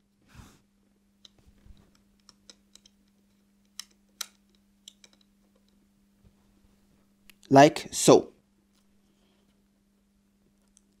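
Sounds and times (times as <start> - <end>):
faint steady hum: 0.0 - 11.0
small clicks of metal standoffs: 1.2 - 5.8.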